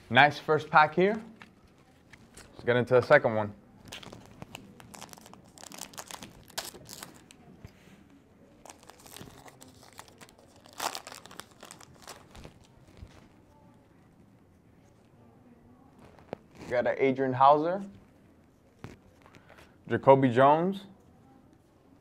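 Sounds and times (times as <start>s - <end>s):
wrapper tearing and crinkling: 3.9s - 7.4s, 8.6s - 13.2s.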